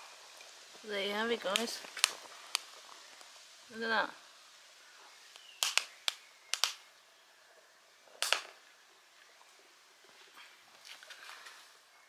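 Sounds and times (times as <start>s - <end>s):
wood fire crackling: 0.0s - 12.0s
sharp pops and snaps: 1.4s - 3.5s, 5.3s - 6.9s, 8.1s - 8.7s.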